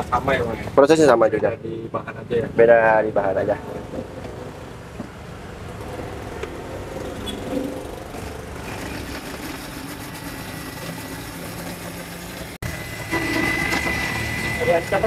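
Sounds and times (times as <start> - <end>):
blender running: 8.2 - 15.0.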